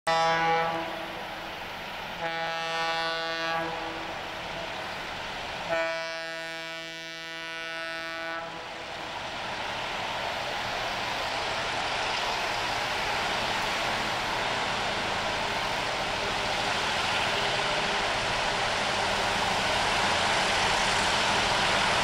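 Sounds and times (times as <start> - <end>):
locomotive air horn blasts: 0.1 - 1.2, 2.2 - 4.1, 5.7 - 8.7
train rumbling on rails: 0.1 - 22.0.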